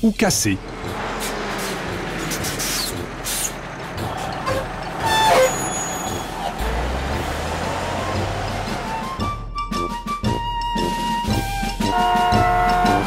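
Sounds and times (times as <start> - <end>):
cartoon truck engine running: 0.1 - 9.6
deep drone: 0.5 - 9.4.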